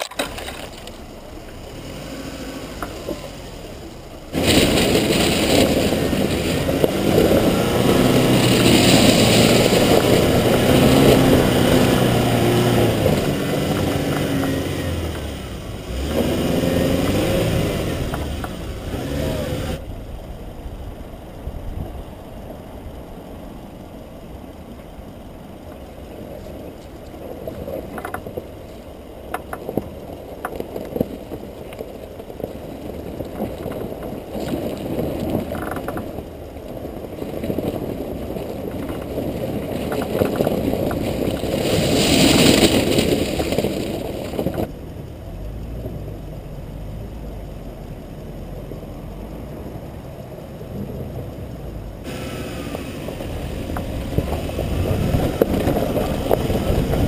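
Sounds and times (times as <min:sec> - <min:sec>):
suv engine and tyres rumbling: 0:00.0 - 0:57.0
rushing hiss: 0:52.1 - 0:55.4.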